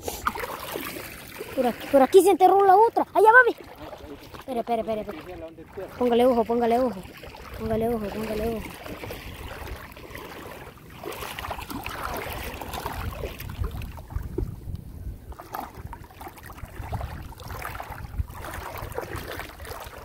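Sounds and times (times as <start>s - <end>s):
feet splashing through water: 0.0s - 20.0s
wind rumble on microphone: 6.0s - 20.0s.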